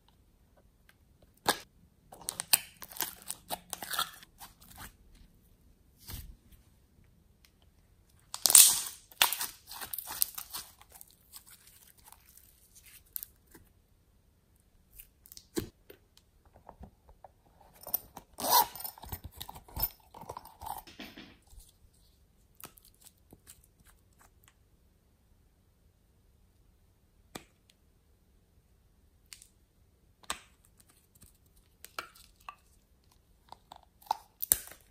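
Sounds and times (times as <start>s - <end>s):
slime crackling and popping: 8.3s - 13.3s.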